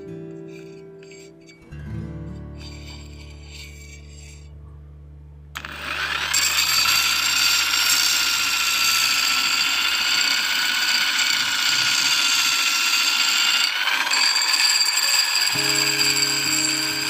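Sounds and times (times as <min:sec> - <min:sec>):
blade grinding hiss: 0:05.6 - 0:17.0
electric drill motor whine: 0:05.6 - 0:17.0.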